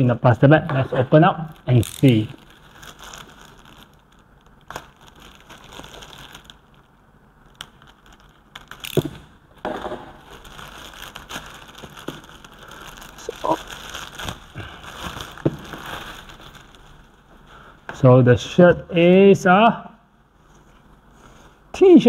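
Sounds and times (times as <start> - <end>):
plastic bag crinkling: 1.0 - 17.3.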